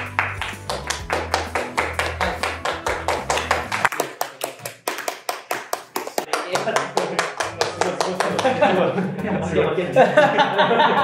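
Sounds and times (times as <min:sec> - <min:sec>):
low background music: 0:00.0 - 0:04.0, 0:06.6 - 0:11.0
hands clapping in quick rhythm: 0:00.0 - 0:08.8.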